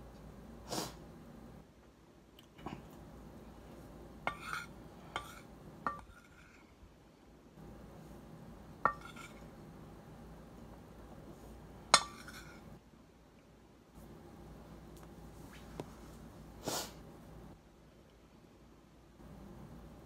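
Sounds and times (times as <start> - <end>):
metal spoon clinking on a dish: 4.3 - 6.5, 8.9 - 9.4, 12.0 - 12.6.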